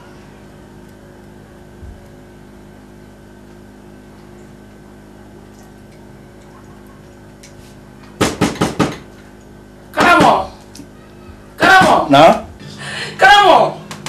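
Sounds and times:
steady hum of fixed tones: 0.0 - 14.0
sharp knocks: 8.2 - 9.0.

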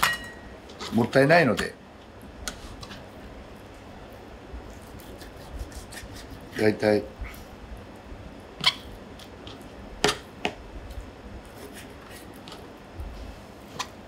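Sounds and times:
knife cutting raw chicken: 4.8 - 6.8.

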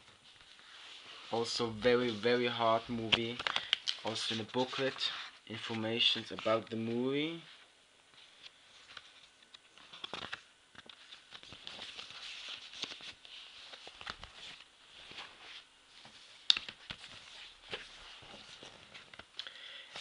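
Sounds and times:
plastic case and paper rustling: 1.4 - 6.9.

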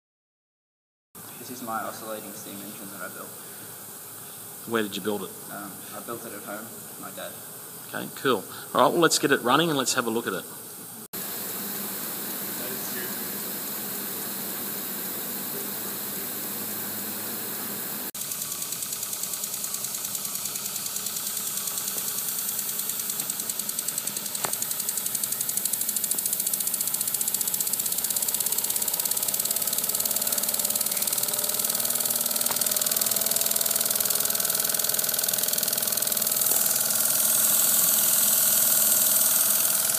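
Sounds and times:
steam hissing: 11.2 - 39.9
steam engine exhaust puffs: 18.1 - 39.9.

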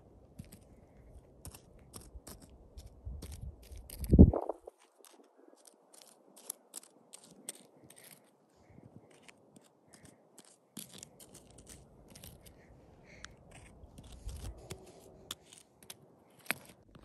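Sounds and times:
toy figurines scraping on gravel: 1.4 - 8.4, 9.1 - 17.0
low rumble: 4.1 - 4.7.

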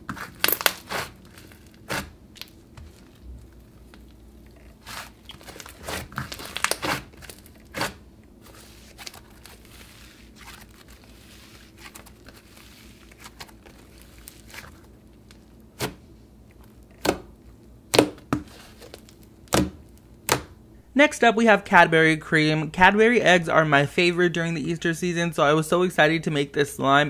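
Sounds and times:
slime crackling and squishing: 0.0 - 20.4.

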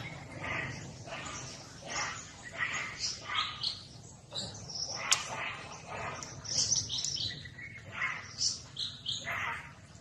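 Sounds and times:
high-pitched chirping calls: 0.0 - 10.0.

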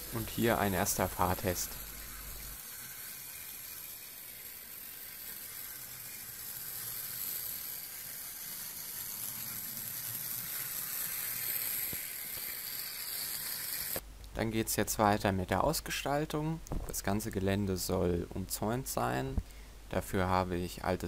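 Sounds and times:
model truck motor whirring: 0.0 - 14.0.

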